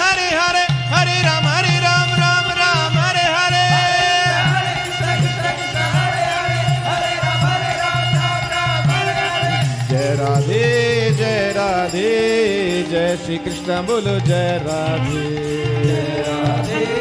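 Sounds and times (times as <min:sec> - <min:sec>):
harmonium chords: 0:00.0 - 0:17.0
steady drum beat: 0:00.0 - 0:17.0
voices singing a devotional chant: 0:00.0 - 0:17.0.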